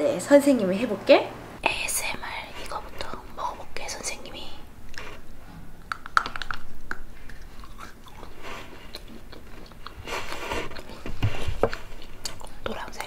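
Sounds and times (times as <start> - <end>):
chewing: 4.9 - 13.0
chalk stick crunching: 5.9 - 12.8.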